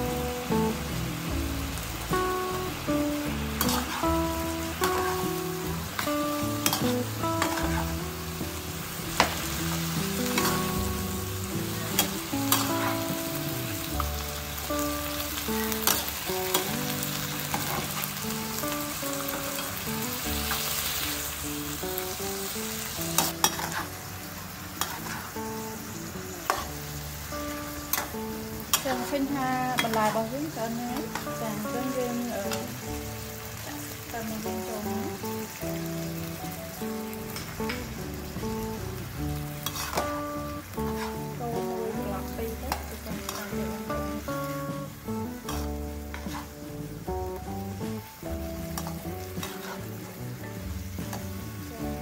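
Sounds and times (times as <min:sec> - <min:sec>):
meat and vegetables sizzling: 0:00.0 - 0:52.0
metal spatula scraping pan: 0:03.6 - 0:05.2, 0:06.0 - 0:08.0, 0:23.2 - 0:24.0, 0:24.8 - 0:25.4, 0:39.6 - 0:40.2, 0:40.8 - 0:41.4, 0:45.4 - 0:46.6, 0:48.7 - 0:50.0.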